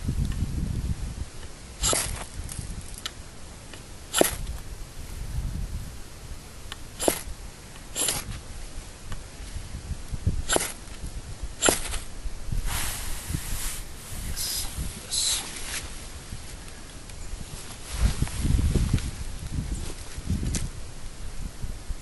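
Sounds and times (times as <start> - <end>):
ferro rod scraping: 1.8 - 2.4, 4.1 - 4.4, 7.0 - 7.3, 7.9 - 8.4, 10.5 - 10.8, 11.6 - 12.1.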